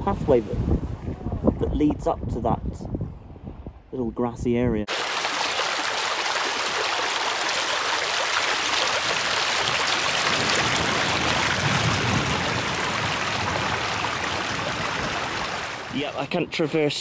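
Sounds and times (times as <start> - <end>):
stream running over pebbles: 4.9 - 16.2.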